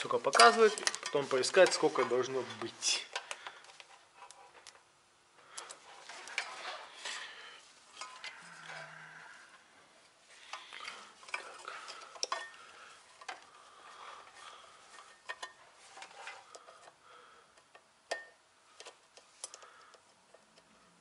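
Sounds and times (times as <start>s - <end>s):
rustling: 5.4s - 17.4s.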